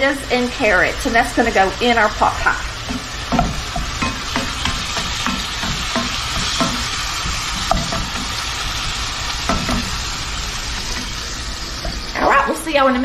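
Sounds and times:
meat sizzling in a skillet: 0:00.0 - 0:13.0
tool scraping and knocking on pan: 0:02.8 - 0:08.4, 0:09.4 - 0:10.0.

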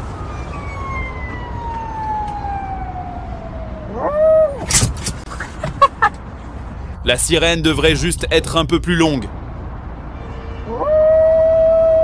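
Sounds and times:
small dog howling: 0:03.9 - 0:04.6, 0:10.7 - 0:12.0.

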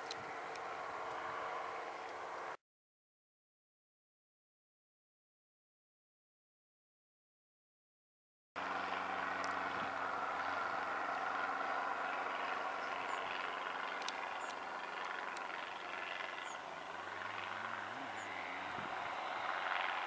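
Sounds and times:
jet engines running: 0:08.6 - 0:20.0.

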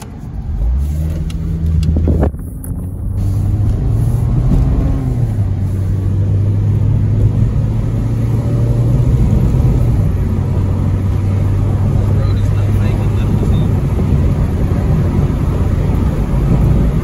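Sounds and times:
car engine from inside cabin: 0:00.0 - 0:17.0
tyre and road noise: 0:00.0 - 0:17.0.

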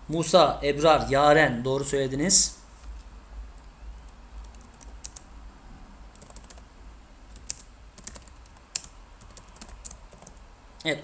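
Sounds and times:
typing on computer keyboard: 0:04.4 - 0:05.3, 0:06.1 - 0:06.7, 0:07.3 - 0:10.4.

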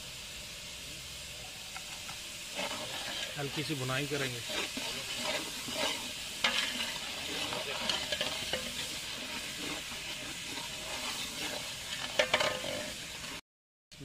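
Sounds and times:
spices sizzling in a pot: 0:00.0 - 0:13.4
metal spatula scraping a pot: 0:02.5 - 0:13.4.

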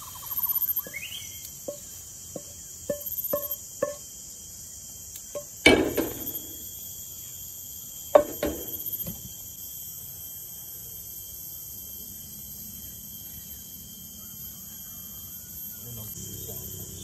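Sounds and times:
insects chirring: 0:00.0 - 0:17.0
wooden spatula tapping a pan: 0:00.8 - 0:04.1, 0:08.2 - 0:08.9.

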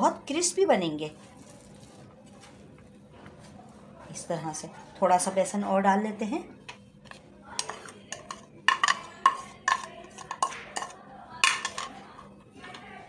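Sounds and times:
hands mixing batter: 0:00.0 - 0:13.0
spoon scraping steel tray: 0:07.1 - 0:12.9.

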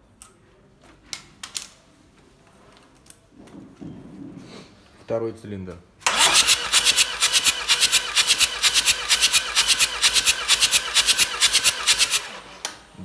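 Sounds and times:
diesel engine cranking on starter: 0:06.0 - 0:12.6.

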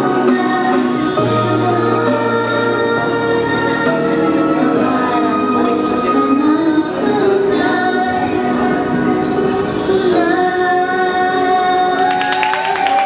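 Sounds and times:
backing track music: 0:00.0 - 0:13.0
girls singing into microphones: 0:00.0 - 0:13.0
people clapping: 0:12.0 - 0:13.0.

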